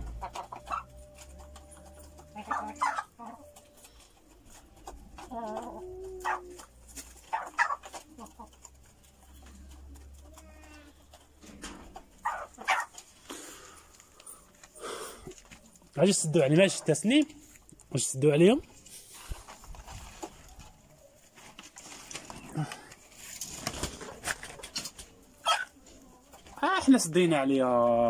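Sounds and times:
chickens clucking and calling: 0.0s - 27.7s.

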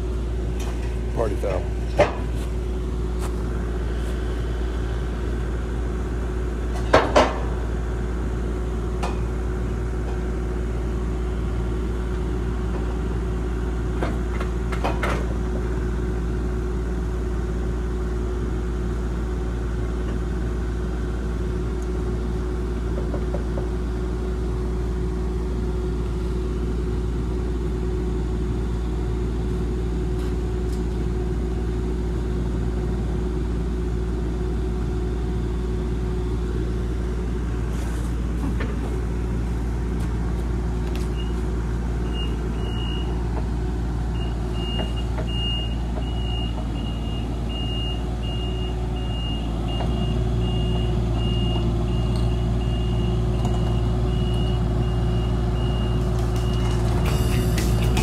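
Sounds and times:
diesel engine idling: 0.0s - 58.0s
sharp metallic knocks: 57.0s - 58.0s.

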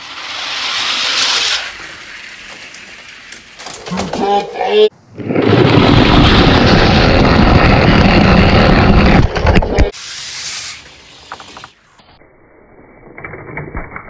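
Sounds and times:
toy car wheels rolling on plastic track: 0.0s - 3.9s.

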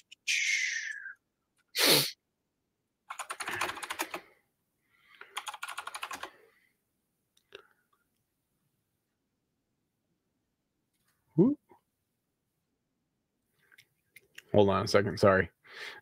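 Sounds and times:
typing on computer keyboard: 3.1s - 4.3s, 5.2s - 6.4s.

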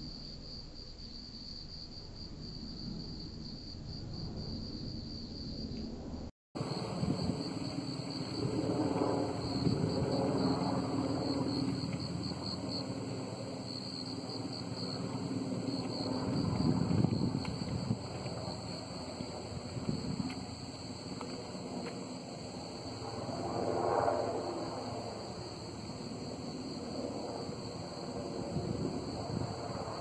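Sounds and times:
crickets chirping: 0.0s - 30.0s
helicopter rotor rumble: 6.6s - 30.0s.

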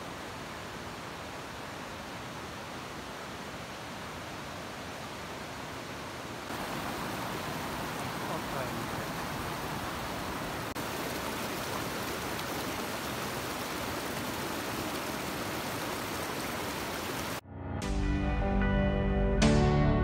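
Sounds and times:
stream rushing over boulders: 0.0s - 17.4s.

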